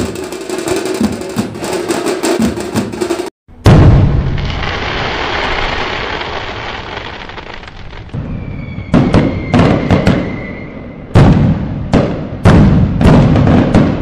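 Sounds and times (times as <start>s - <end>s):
firework bangs: 3.6s - 14.0s
firework crackling and hissing: 4.2s - 10.3s
faint high whistle: 8.2s - 11.1s.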